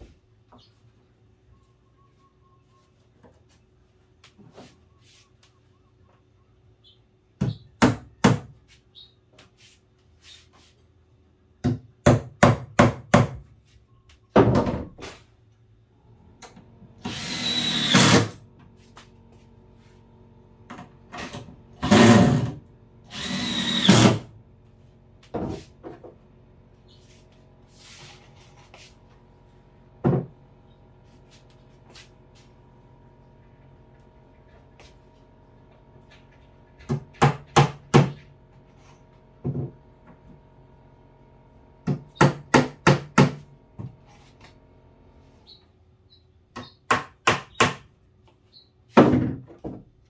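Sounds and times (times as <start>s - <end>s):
cordless drill driving screws: 17.0s - 18.4s, 23.1s - 24.2s.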